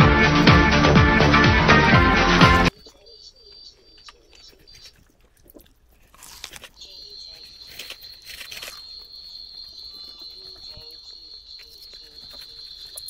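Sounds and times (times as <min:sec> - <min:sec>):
chewing noodles: 0:04.0 - 0:13.0.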